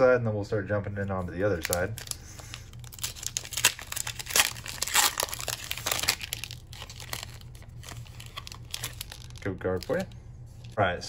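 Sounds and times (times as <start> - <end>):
foil wrapper crinkling and tearing: 1.4 - 10.2.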